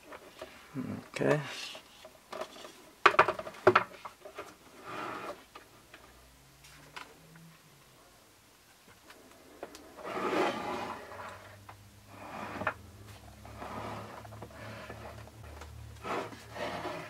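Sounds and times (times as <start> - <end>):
plastic and metal scraping: 1.6 - 5.7, 9.9 - 17.0.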